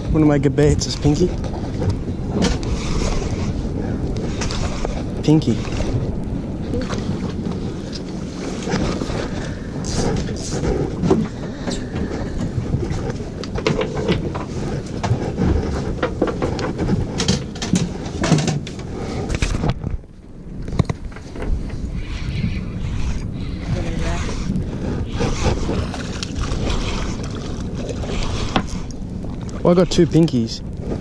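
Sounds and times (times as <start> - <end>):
water around boat: 0.0 - 31.0
wind rumbling on microphone: 0.0 - 31.0
fishing gear clicking and knocking: 9.8 - 20.0.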